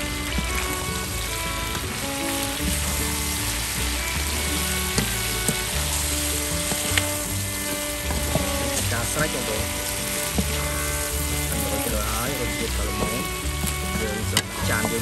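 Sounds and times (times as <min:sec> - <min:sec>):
food sizzling in a wok: 0:00.2 - 0:12.0.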